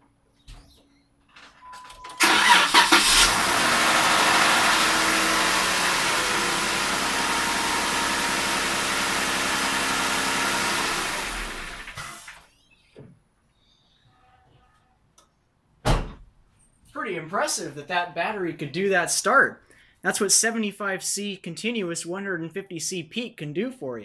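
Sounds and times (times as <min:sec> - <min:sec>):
car engine starting and idling: 0:02.2 - 0:12.4.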